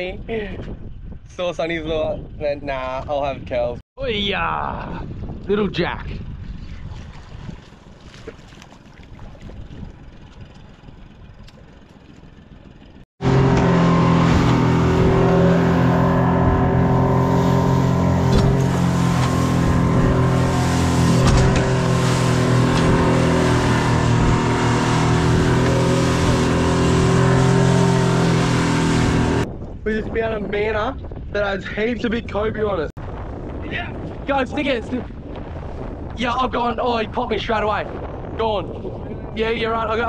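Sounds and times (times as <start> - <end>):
wind: 0.0 - 40.0
outboard motor running: 4.9 - 29.4.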